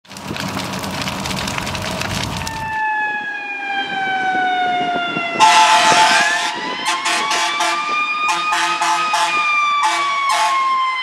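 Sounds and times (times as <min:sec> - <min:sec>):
fire crackling: 0:00.0 - 0:02.8
fire engine siren: 0:01.0 - 0:11.0
air horn blast: 0:05.4 - 0:10.7.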